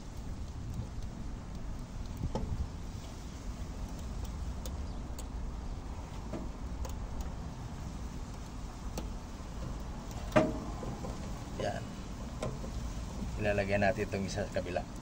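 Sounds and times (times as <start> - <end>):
steady low hum: 0.0 - 15.0
clicks and taps of screwdriver: 3.8 - 5.4.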